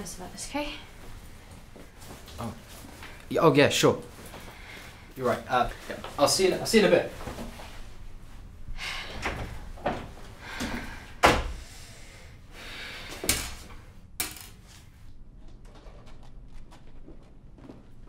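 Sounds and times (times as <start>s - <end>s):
door shutting with a thud: 11.2s - 11.6s.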